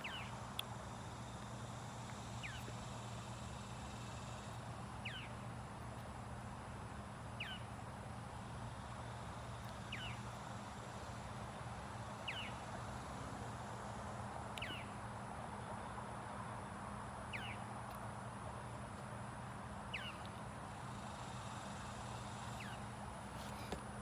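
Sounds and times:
steady low hum: 0.0 - 24.0.

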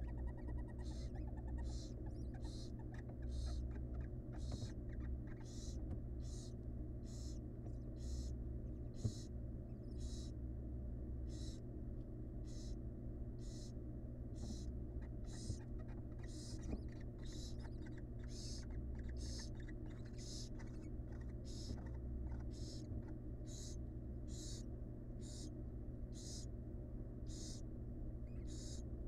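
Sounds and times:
owl chicks hissing begging calls: 0.0 - 10.4, 11.2 - 11.6, 12.4 - 12.8, 13.4 - 13.8, 14.4 - 25.5, 26.1 - 26.5, 27.2 - 27.7, 28.3 - 28.9
low hum: 0.0 - 29.0.

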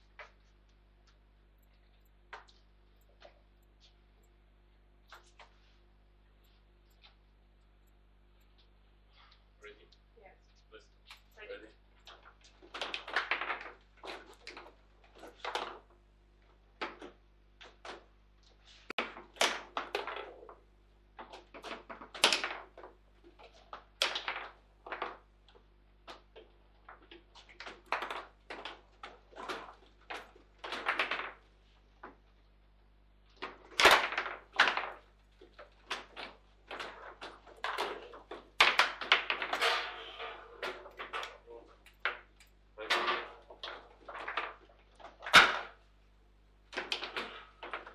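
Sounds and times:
table football knocks and clacks: 21.2 - 25.3, 33.4 - 40.0.

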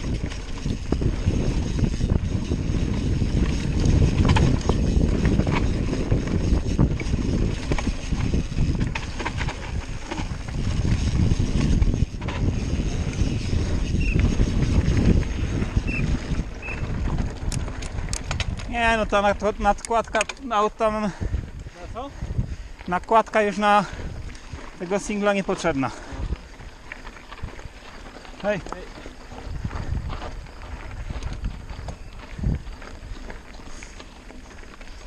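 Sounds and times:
bike knocks and rattles: 0.0 - 18.8
tyres rolling over dirt: 0.0 - 35.0
wind buffeting microphone: 0.0 - 35.0.

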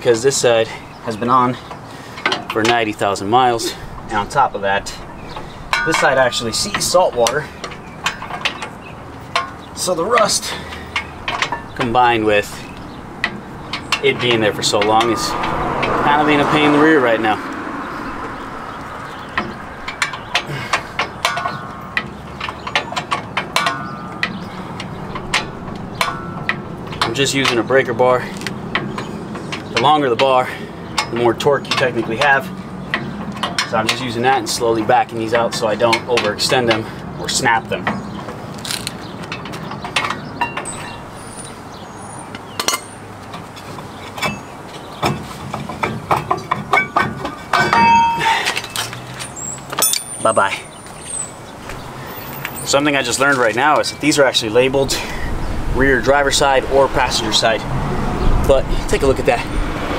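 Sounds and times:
metallic clinks and knocks: 5.3 - 11.9, 18.0 - 27.6, 42.3 - 52.7.

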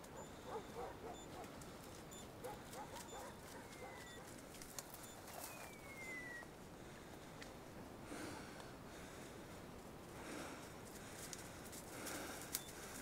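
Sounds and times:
rustling and twigs snapping: 0.0 - 6.4, 7.1 - 7.6, 9.7 - 13.0
falling whistle-like tones: 5.5 - 6.5.

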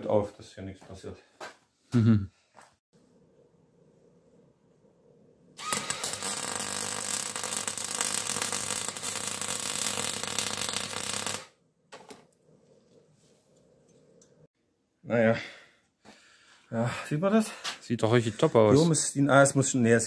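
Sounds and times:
arc welding crackling: 5.6 - 11.6.

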